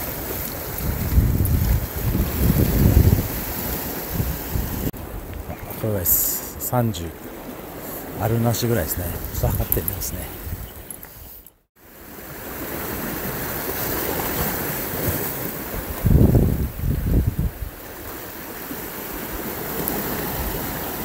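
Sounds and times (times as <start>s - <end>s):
wind on microphone: 0.0s - 5.8s, 8.9s - 11.6s, 13.9s - 17.9s
waves washing against rocks: 0.0s - 10.6s, 11.8s - 21.0s.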